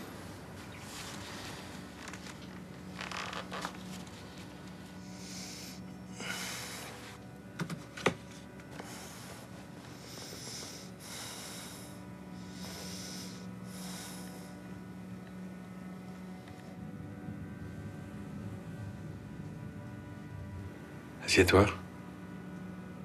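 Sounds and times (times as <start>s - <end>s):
faint low hum: 0.0s - 23.0s
man breathing in sleep: 4.9s - 7.2s, 8.7s - 14.9s.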